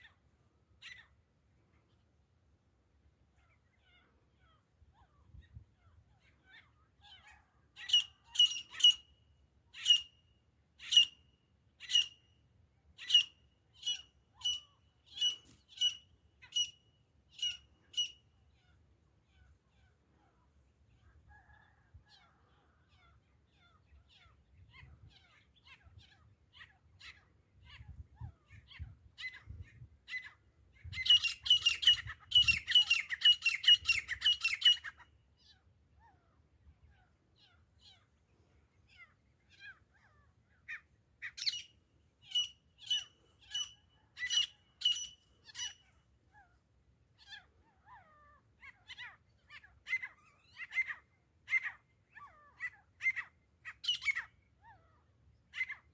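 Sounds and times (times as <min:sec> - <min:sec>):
bird calling repeated notes: 0:39.0 - 0:46.6.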